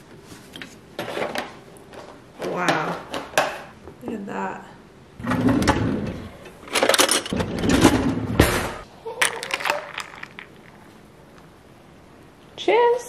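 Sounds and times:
ice cubes clinking in glass jar: 9.2s - 10.8s.

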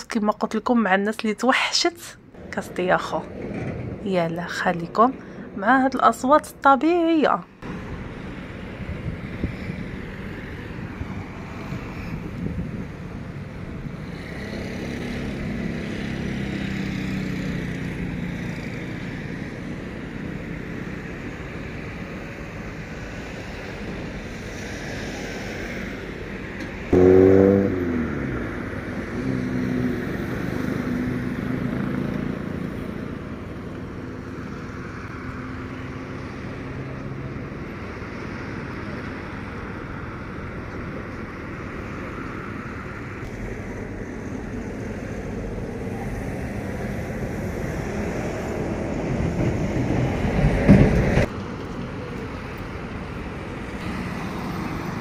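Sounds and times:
vehicles passing: 0.9s - 55.0s
loud sound falling in pitch: 26.9s - 28.7s.

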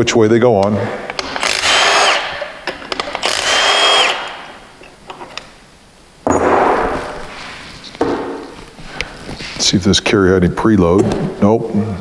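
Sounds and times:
cordless impact tool whining: 1.2s - 4.5s.

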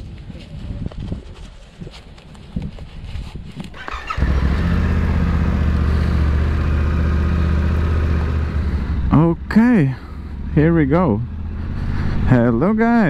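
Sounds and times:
motorcycle engine idling: 3.4s - 10.5s.

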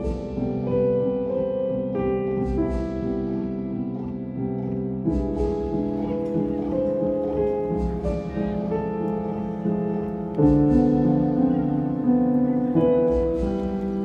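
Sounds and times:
instrumental melody of held notes: 5.6s - 14.0s.

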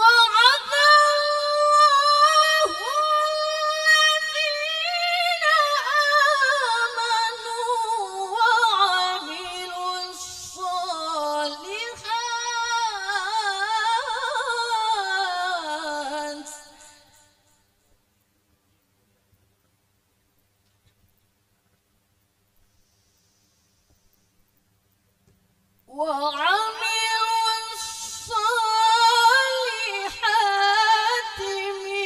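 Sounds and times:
woman reciting melodically: 0.0s - 17.4s, 25.9s - 32.0s.

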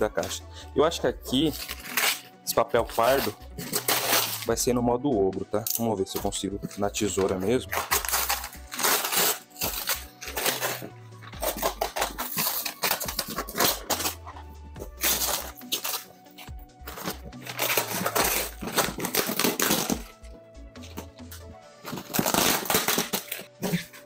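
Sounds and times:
background music: 0.0s - 24.0s
paper tearing and crinkling: 1.3s - 4.5s, 7.2s - 20.3s, 21.8s - 24.0s
scissors cutting paper: 1.4s - 2.3s, 2.9s - 4.5s, 6.6s - 20.2s, 20.8s - 24.0s.

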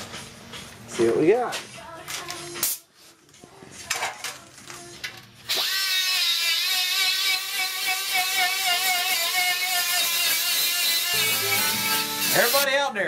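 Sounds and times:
cut-off wheel cutting steel: 5.5s - 12.6s.

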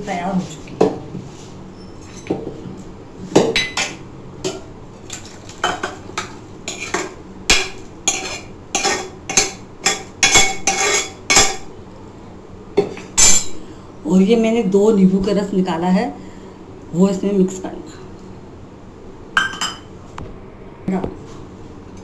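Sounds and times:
ladle knocking and scraping metal pot: 6.7s - 11.6s.

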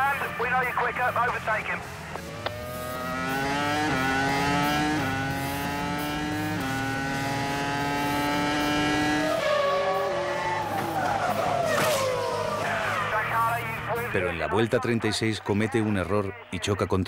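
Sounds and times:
racing car engine shifting gears: 1.2s - 13.2s.

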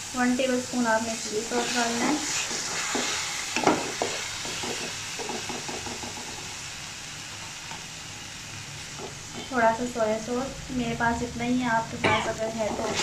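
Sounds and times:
sauce sizzling in hot oil: 0.0s - 13.0s
wooden spatula scraping pan: 1.5s - 4.9s, 12.6s - 13.0s.

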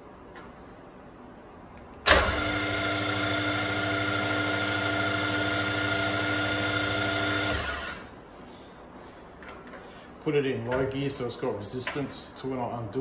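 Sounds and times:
mill-drill motor humming: 2.1s - 8.0s.

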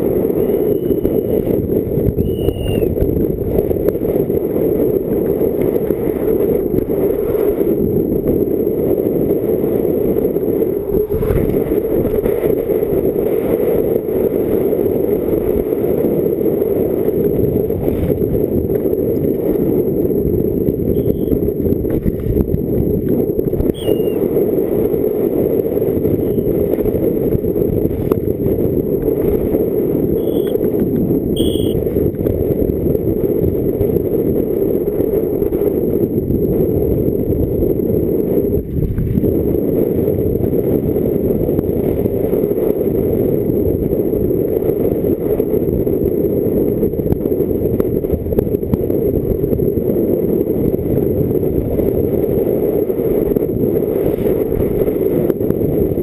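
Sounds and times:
bike tyre and frame rumble: 0.0s - 56.0s
wind rush: 0.0s - 56.0s
short high squeaks: 2.2s - 3.0s, 23.6s - 24.2s, 30.2s - 30.6s, 31.4s - 31.8s.

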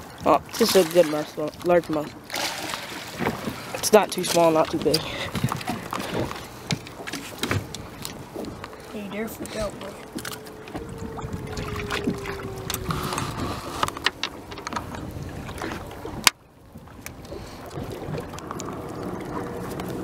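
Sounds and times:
wind buffeting microphone: 3.1s - 20.0s
knocks and clicks handling gear: 4.2s - 8.8s, 11.6s - 16.4s.

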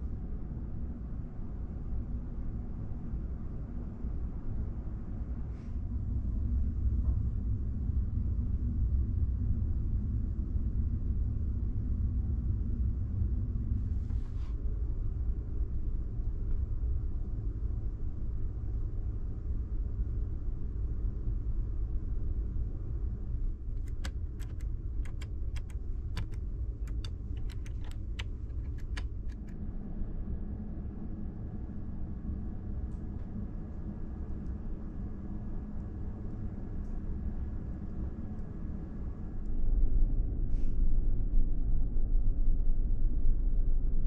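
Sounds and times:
low rumble of ship machinery: 0.0s - 44.0s
buttons and switches clicking: 23.8s - 29.5s.

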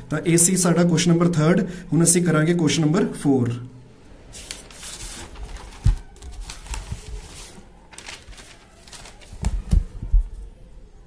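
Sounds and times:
paper rustling: 4.3s - 10.4s.

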